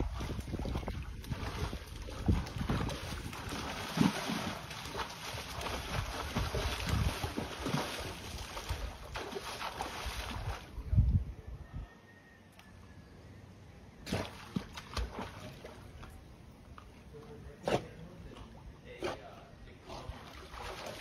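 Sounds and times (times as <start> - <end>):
water splashing in a pool: 0.0 - 10.8, 14.0 - 16.8, 19.8 - 21.0
wind rumbling on microphone: 0.0 - 11.9.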